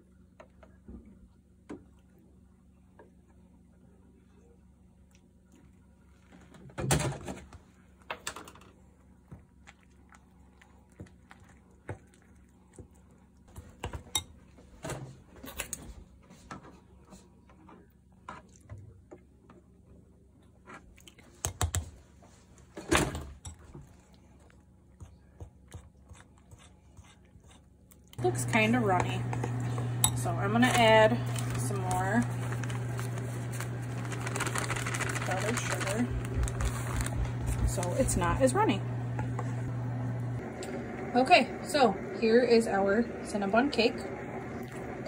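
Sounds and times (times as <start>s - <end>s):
spoon clinking and scraping bowl: 29.3s - 31.4s.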